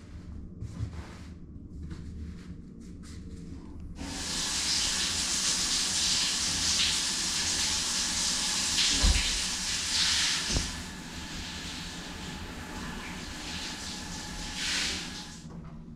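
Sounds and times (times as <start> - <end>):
shower spray hissing on tiles: 4.0 - 15.4.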